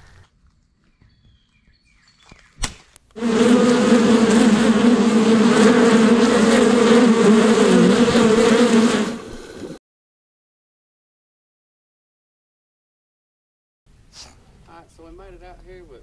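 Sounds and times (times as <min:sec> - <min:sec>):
baseball bat crack: 0:02.6 - 0:03.0
swarm of bees buzzing: 0:03.2 - 0:09.8.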